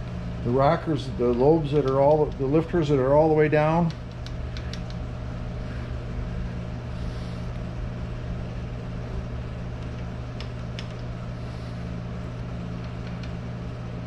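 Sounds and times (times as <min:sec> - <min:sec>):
shop equipment humming: 0:00.0 - 0:14.0
faint light clicks: 0:03.8 - 0:05.0.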